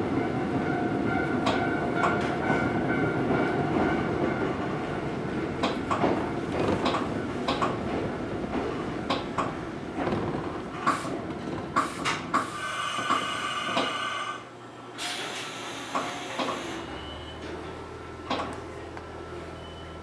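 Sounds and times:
train wheels clicking over joints: 5.6s - 14.0s
train brakes squealing: 12.4s - 14.4s, 15.0s - 17.5s.

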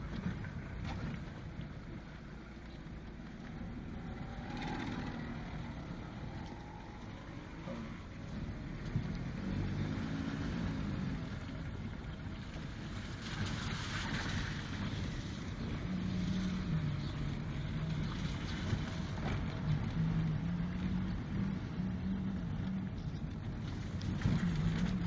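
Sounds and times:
tyres on dirt track: 0.0s - 25.0s
car engine from inside cabin: 0.1s - 12.9s.

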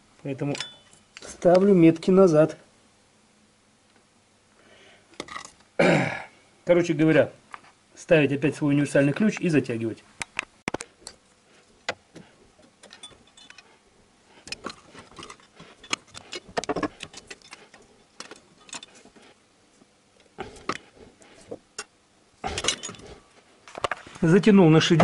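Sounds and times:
metal tools clinking: 0.4s - 1.0s, 12.8s - 13.8s, 14.5s - 19.1s, 22.5s - 23.2s.

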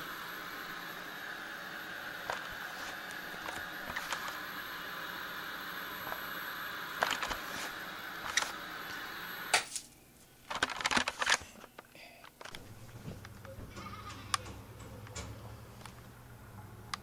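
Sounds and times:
low steady hum: 0.0s - 17.0s
tv static hiss: 0.0s - 17.0s
tv switch click: 13.2s - 16.0s.

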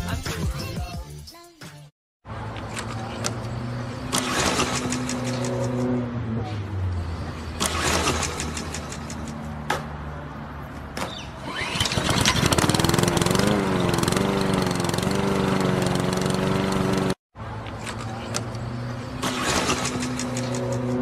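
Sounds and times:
lawn mower engine running: 2.4s - 5.9s, 7.2s - 9.4s, 11.4s - 21.0s
starter cord pulls: 11.5s - 13.4s.

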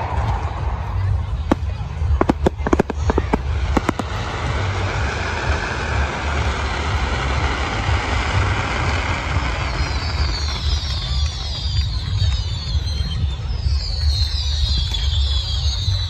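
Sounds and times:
firework bangs: 0.0s - 12.8s
fireworks rushing and rumbling: 0.0s - 16.0s
firework whistles falling: 2.2s - 16.0s.

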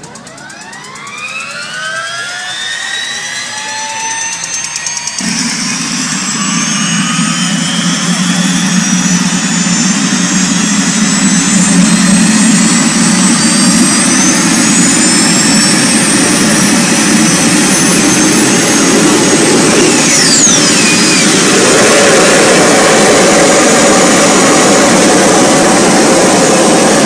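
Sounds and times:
turbine motorcycle engine whine: 0.0s - 27.0s.

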